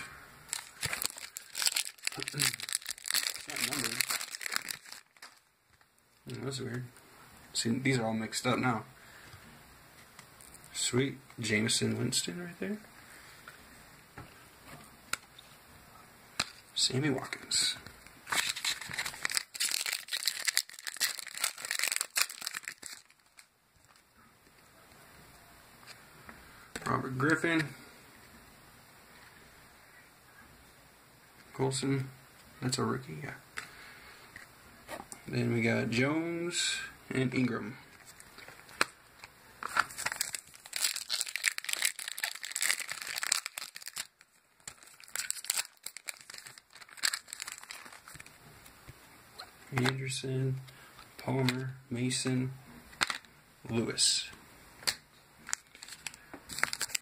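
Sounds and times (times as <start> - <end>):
foil wrapper crinkling and tearing: 0.5 - 5.9, 17.3 - 24.1, 37.9 - 48.4, 54.8 - 57.0.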